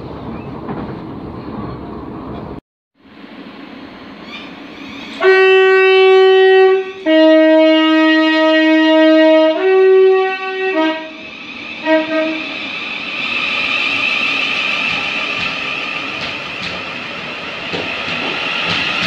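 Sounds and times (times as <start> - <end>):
train running noise: 0.0 - 19.0
electric train two-tone horn: 5.1 - 12.6.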